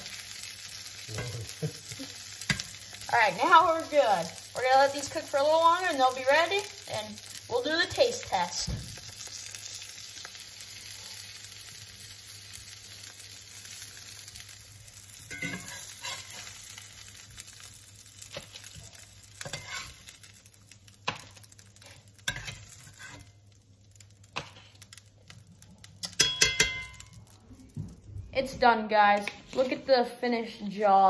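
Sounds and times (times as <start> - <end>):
fish sizzling in hot fat: 0.0 - 27.9
metal spatula scraping pan: 15.3 - 16.6, 19.4 - 20.1, 21.8 - 23.4.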